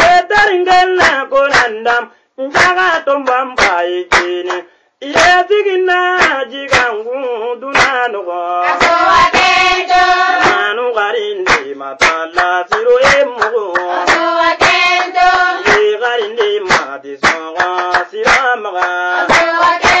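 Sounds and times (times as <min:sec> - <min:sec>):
voices singing long notes: 0:08.5 - 0:11.1, 0:13.6 - 0:16.1, 0:18.8 - 0:20.0
sharp percussive strikes: 0:08.6 - 0:10.7, 0:11.5 - 0:16.0.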